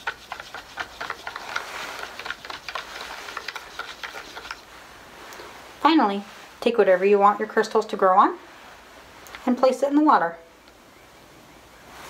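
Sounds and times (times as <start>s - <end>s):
stirrer ticking against beaker: 0.0s - 4.6s.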